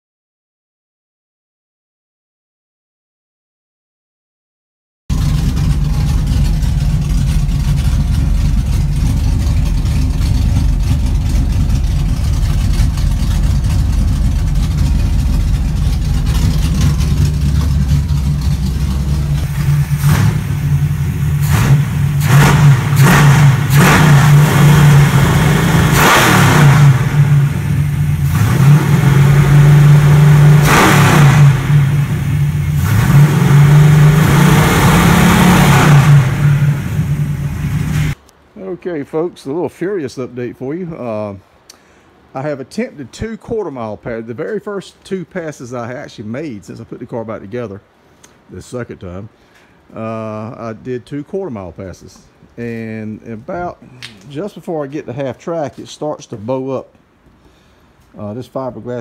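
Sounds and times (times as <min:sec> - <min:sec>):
car engine idling and revving: 0:05.1 - 0:38.2.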